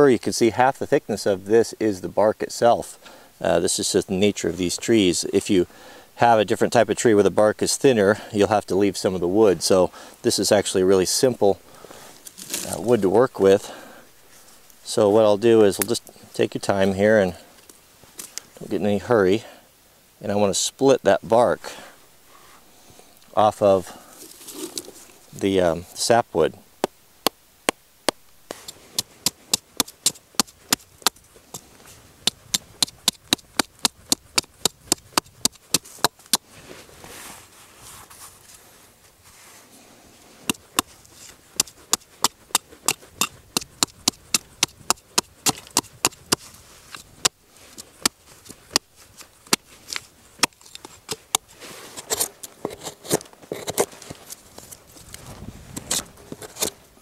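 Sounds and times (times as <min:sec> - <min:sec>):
hatchet cutting into wood: 0:26.8 - 0:31.6, 0:32.2 - 0:36.4, 0:40.4 - 0:40.9, 0:41.6 - 0:46.4, 0:47.0 - 0:49.7, 0:50.4 - 0:53.9.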